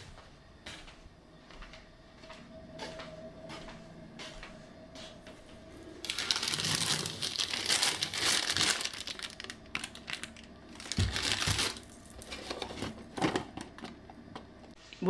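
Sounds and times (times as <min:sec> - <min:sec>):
plastic bag crinkling: 0:06.0 - 0:13.0.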